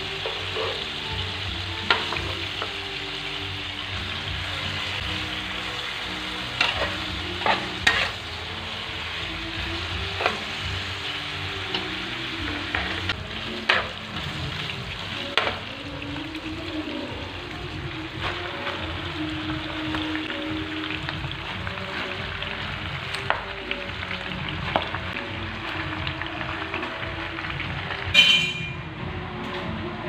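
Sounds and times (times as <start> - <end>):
utensils clinking and scraping pan: 0.0 - 1.0, 6.4 - 8.3, 10.1 - 10.6, 11.6 - 14.3
meat sizzling in a frying pan: 0.0 - 28.1.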